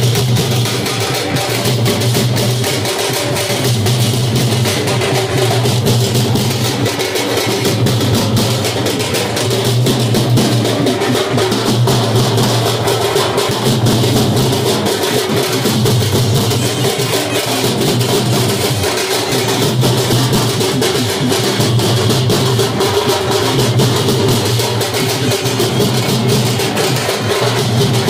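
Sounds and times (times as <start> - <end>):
drums beaten with sticks: 0.0 - 28.0.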